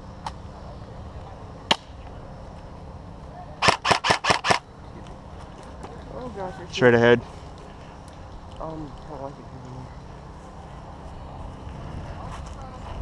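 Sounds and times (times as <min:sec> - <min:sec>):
airsoft rifle shots: 0:03.6 - 0:04.6.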